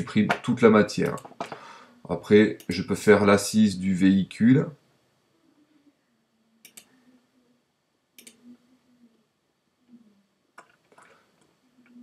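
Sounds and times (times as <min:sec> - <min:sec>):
faint computer mouse clicks: 0:06.6 - 0:06.9, 0:08.2 - 0:08.4.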